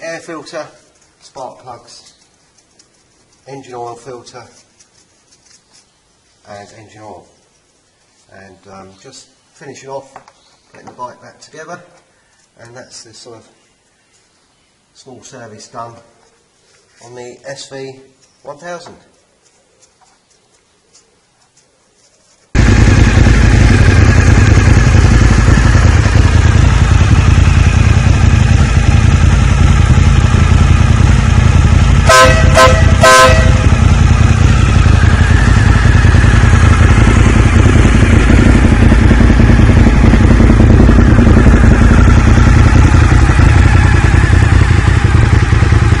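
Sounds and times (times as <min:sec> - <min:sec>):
motorcycle engine running: 0:22.5 - 0:46.0
horn beeps: 0:32.1 - 0:33.8.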